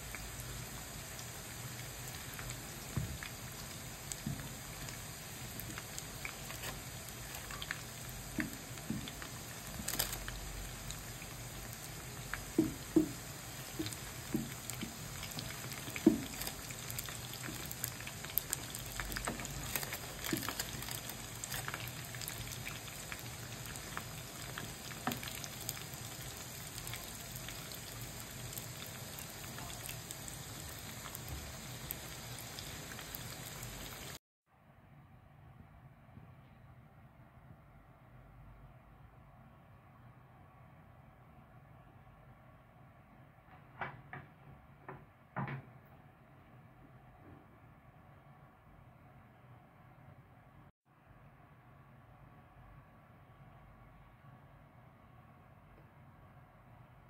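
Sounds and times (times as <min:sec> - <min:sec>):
hot oil sizzling and crackling: 0:00.0 - 0:34.2.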